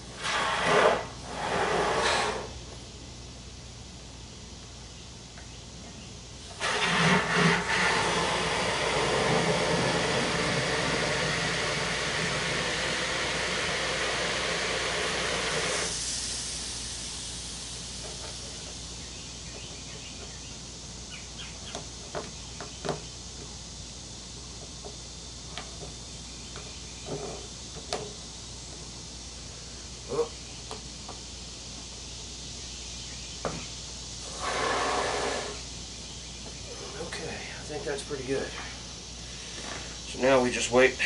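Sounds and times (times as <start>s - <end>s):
spray foam can hissing: 6.4s - 19.0s.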